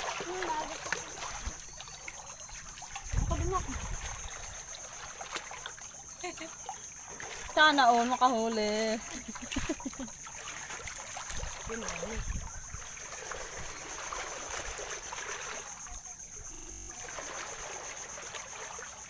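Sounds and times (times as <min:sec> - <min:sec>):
water lapping at shore: 0:00.0 - 0:19.0
wind on microphone: 0:03.0 - 0:04.5, 0:11.4 - 0:12.9.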